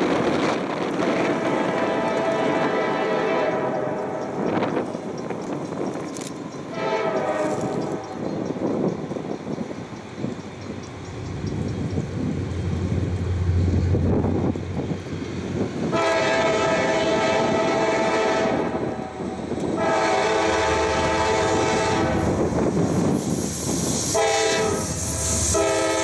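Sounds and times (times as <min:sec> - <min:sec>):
diesel locomotives rumbling: 0:00.0 - 0:26.0
train air horn blasts: 0:01.0 - 0:04.6, 0:06.7 - 0:08.2, 0:15.9 - 0:22.4, 0:24.0 - 0:26.0.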